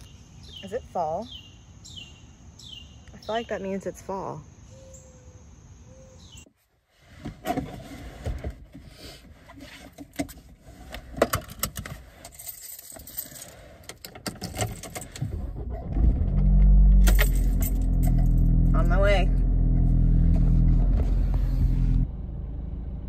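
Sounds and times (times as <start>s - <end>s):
sharp clicks and rattles: 11.1s - 18.8s
rustling in car seat: 19.8s - 22.0s.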